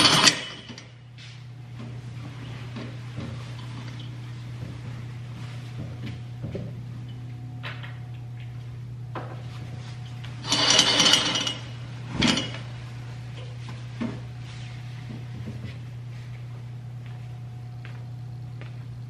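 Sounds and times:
curtain rings scraping along rod: 0:00.0 - 0:00.8, 0:10.4 - 0:12.7.

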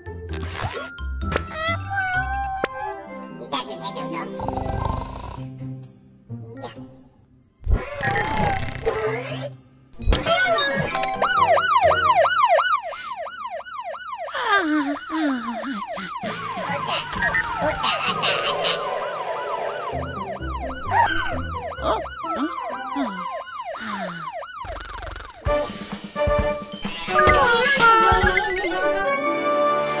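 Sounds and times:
background music: 0:00.0 - 0:12.8, 0:16.2 - 0:24.0, 0:25.3 - 0:30.0
fire truck siren wailing: 0:10.6 - 0:25.4.

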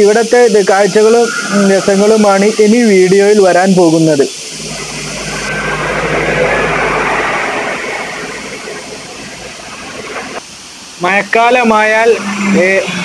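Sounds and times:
low rumble: 0:04.4 - 0:10.4.

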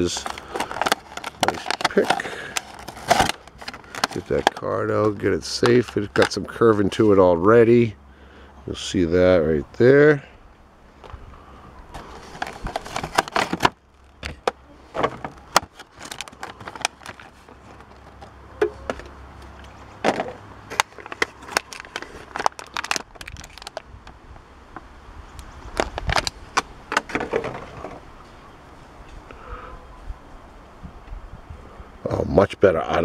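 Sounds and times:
plastic bag crinkling: 0:00.0 - 0:06.4, 0:12.0 - 0:14.3, 0:15.3 - 0:18.4, 0:20.7 - 0:23.9.

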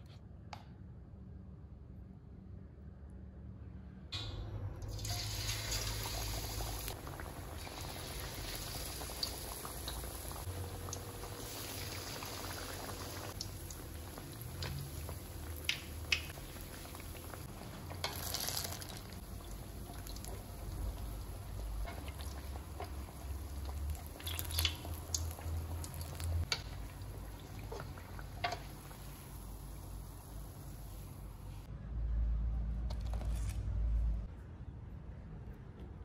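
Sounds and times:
fritters deep-frying in hot oil: 0:04.8 - 0:31.7.

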